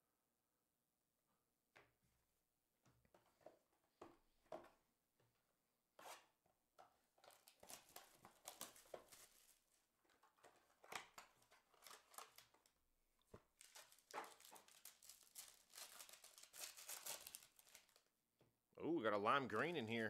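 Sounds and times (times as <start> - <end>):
trading card packs rustling: 7.2 - 12.8, 13.4 - 18.1.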